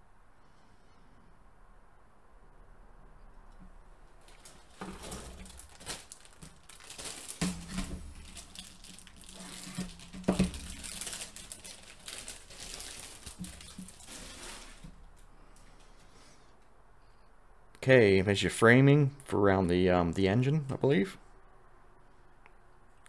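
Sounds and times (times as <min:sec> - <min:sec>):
plastic bag crinkling: 0:04.2 - 0:15.2.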